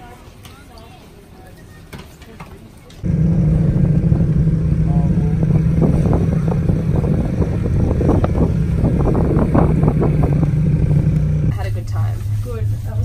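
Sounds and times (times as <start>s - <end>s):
chairlift rumble and hum: 3.0s - 13.0s.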